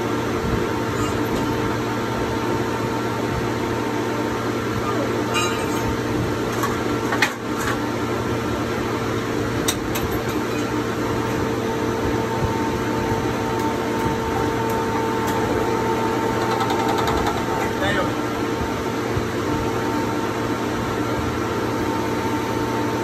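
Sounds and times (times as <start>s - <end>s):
machine mechanical hum: 0.0s - 23.0s.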